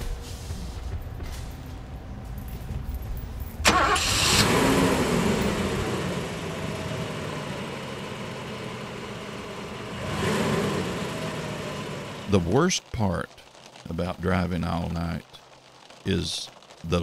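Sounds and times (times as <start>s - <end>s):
car engine starting and idling: 0.0s - 12.5s.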